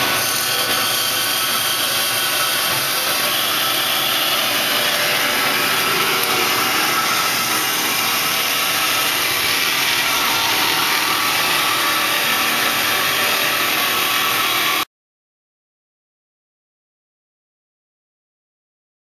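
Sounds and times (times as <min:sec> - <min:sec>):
bandsaw cutting metal: 0:00.0 - 0:14.9.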